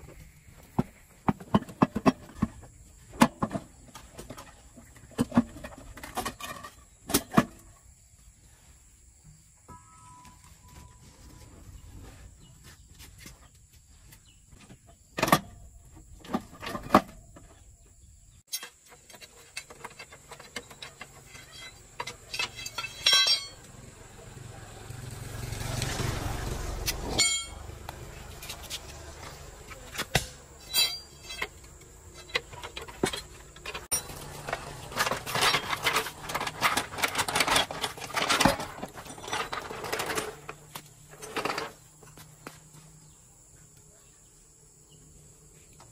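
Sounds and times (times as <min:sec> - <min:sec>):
metal tools clanking: 0:09.7 - 0:11.5, 0:18.5 - 0:23.7, 0:27.1 - 0:27.7, 0:29.7 - 0:41.8
vehicle passing: 0:23.7 - 0:29.7.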